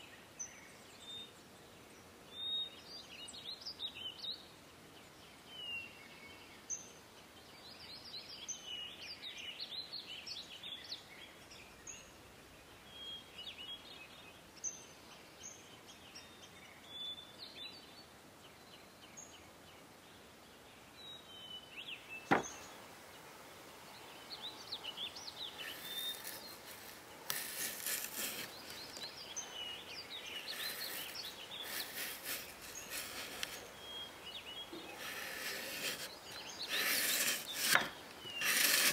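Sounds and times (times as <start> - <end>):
small birds chirping: 0.0 - 38.9
knife scraping apple: 25.6 - 29.0, 30.4 - 33.7, 34.8 - 38.9.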